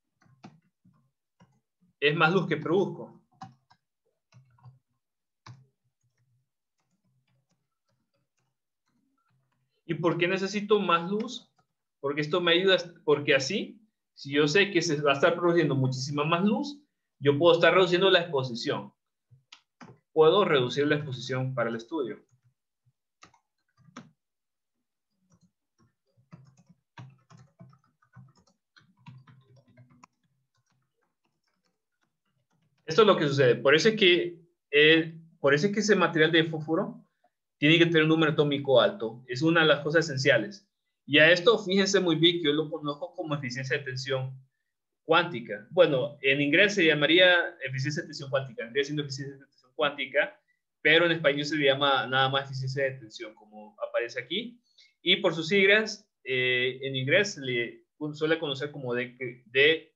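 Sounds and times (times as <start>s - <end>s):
faint keyboard typing: 0.0s - 13.0s, 18.9s - 24.4s, 25.0s - 34.0s.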